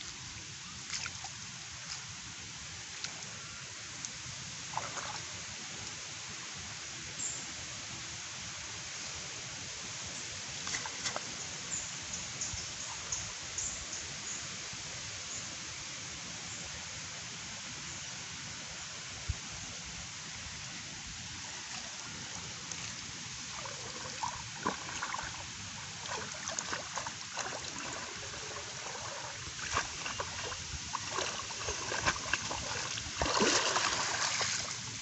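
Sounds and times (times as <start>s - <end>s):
steady background hiss: 0.0s - 35.0s
water splashing around legs: 0.9s - 2.0s, 23.5s - 34.9s.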